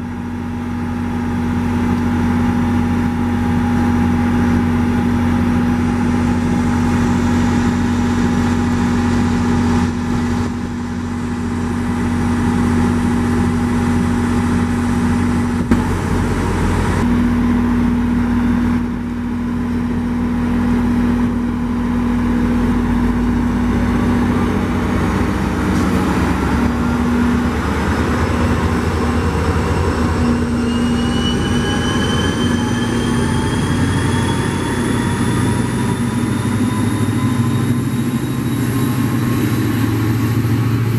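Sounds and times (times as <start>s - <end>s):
diesel locomotive engine drone: 0.0s - 40.9s
whining tones rising in pitch: 21.9s - 40.9s.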